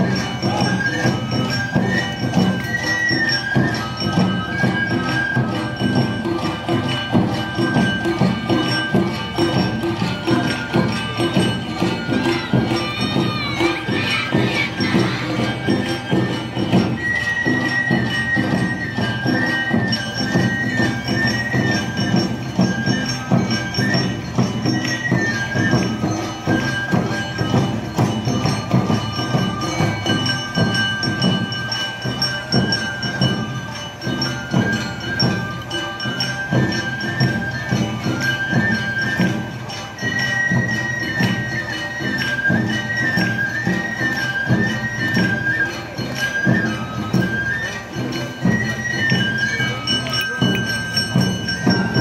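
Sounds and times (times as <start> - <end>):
bamboo flute melody: 0.0 - 52.0
fast drumming: 0.0 - 52.0
hand gong clanging: 49.8 - 52.0.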